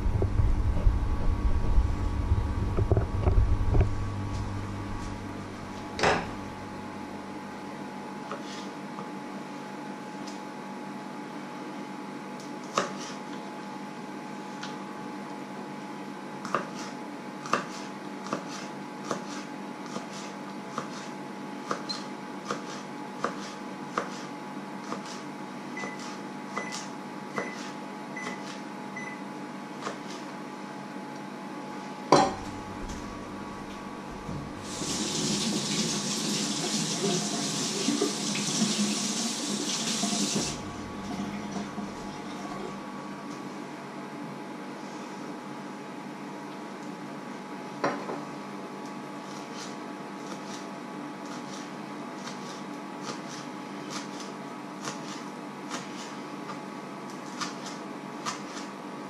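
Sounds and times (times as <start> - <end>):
knife chopping on wooden board: 16.4 - 25.2
water running from tap: 34.6 - 41.8.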